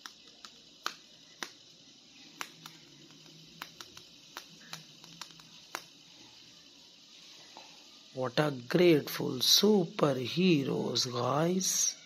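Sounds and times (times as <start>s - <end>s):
plastic figures clicking: 0.0s - 1.8s, 2.4s - 6.0s.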